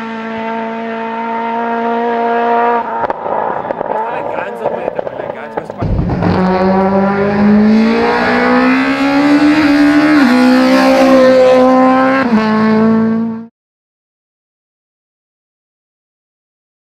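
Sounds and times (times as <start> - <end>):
race car engine revving high: 0.0 - 13.5.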